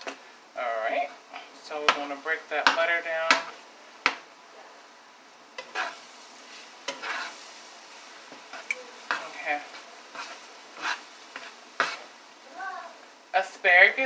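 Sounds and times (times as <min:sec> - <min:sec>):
butter sizzling in frying pan: 0:00.0 - 0:14.0
utensil scraping pan: 0:05.6 - 0:07.5, 0:08.3 - 0:12.1.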